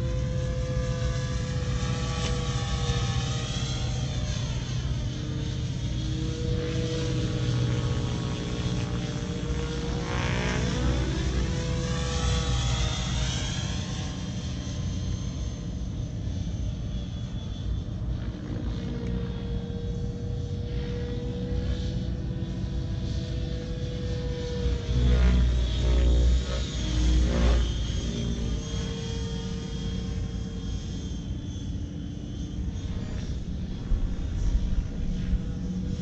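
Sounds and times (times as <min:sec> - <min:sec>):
model helicopter motor whine: 0:00.0 - 0:36.0
low hum: 0:17.9 - 0:36.0.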